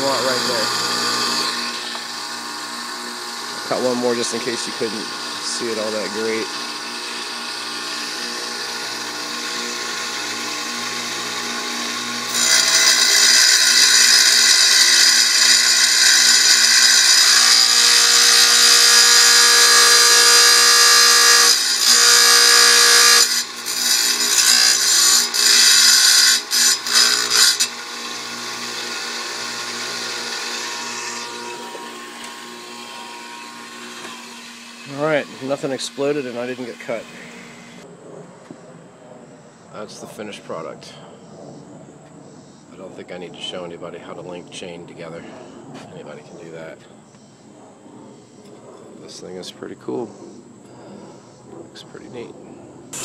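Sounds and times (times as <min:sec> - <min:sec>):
tile saw motor hum: 0:00.0 - 0:37.8
saw blade grinding glass: 0:03.6 - 0:37.6.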